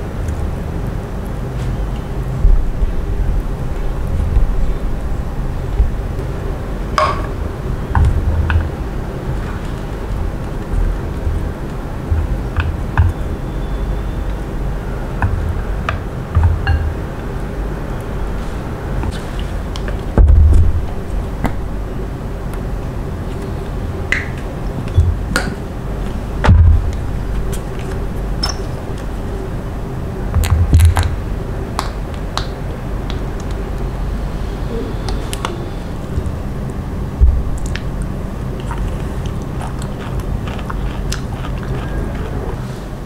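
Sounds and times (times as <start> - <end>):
low hum: 0.0 - 43.0
steady low rumble: 0.0 - 43.0
chopsticks tapping ceramic dish: 15.9 - 17.0.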